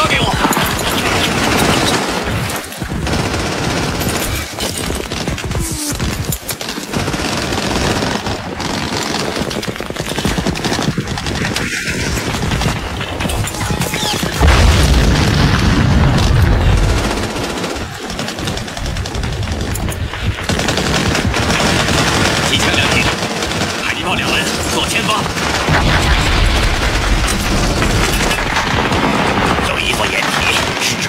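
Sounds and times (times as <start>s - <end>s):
machine-gun fire: 0.0s - 31.0s
rifle shots: 0.0s - 31.0s
heavy boom: 14.4s - 17.0s, 25.7s - 29.9s.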